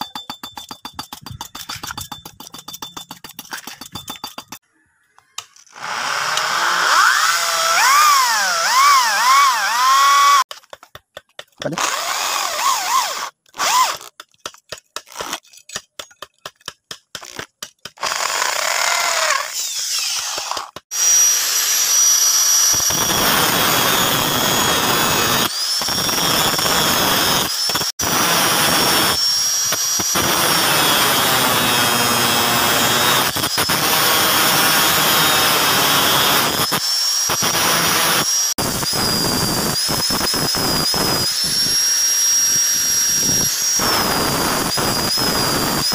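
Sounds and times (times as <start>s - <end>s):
angle grinder cutting steel: 5.4s - 10.5s, 11.6s - 14.1s, 18.0s - 45.9s
electric drill boring steel: 5.7s - 10.5s, 11.6s - 14.1s, 18.0s - 45.9s.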